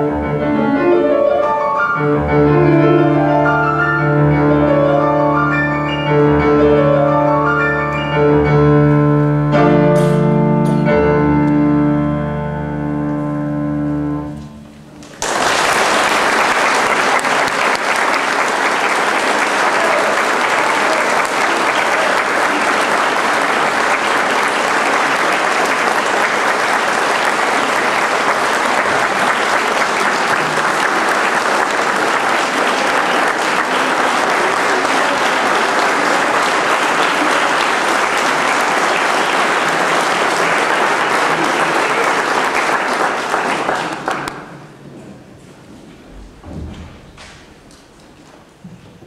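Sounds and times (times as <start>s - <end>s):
audience applauding: 15.0s - 44.8s.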